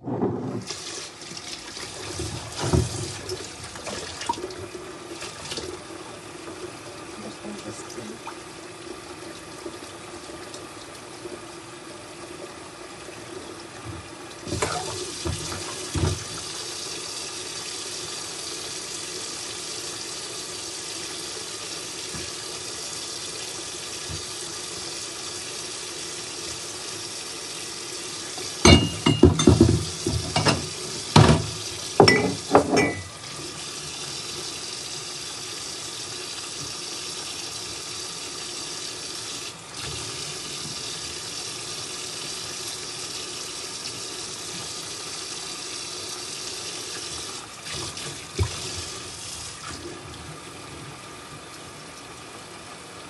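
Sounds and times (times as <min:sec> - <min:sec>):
tap running into sink: 0:00.0 - 0:05.8, 0:13.8 - 0:16.7, 0:22.0 - 0:22.4, 0:23.9 - 0:24.6, 0:28.3 - 0:34.2, 0:47.0 - 0:49.8.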